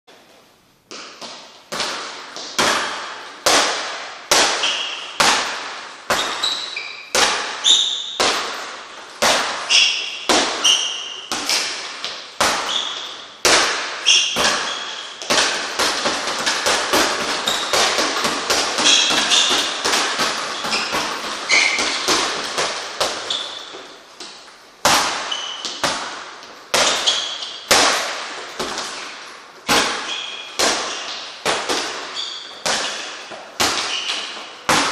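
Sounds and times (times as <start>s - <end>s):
gloved punches hitting punching bag: 8.2s - 9.7s.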